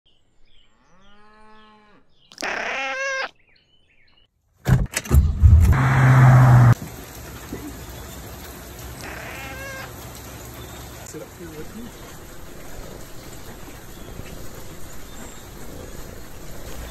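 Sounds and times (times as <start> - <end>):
cat meowing: 2.3 - 3.3, 9.0 - 9.9
car engine starting and running: 4.7 - 6.8.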